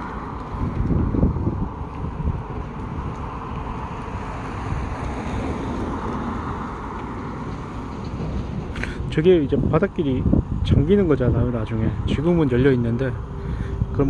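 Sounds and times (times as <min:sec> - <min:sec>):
car passing close: 0:00.0 - 0:09.6
cars driving by: 0:00.0 - 0:10.6, 0:11.7 - 0:14.0
wind buffeting microphone: 0:00.0 - 0:14.0.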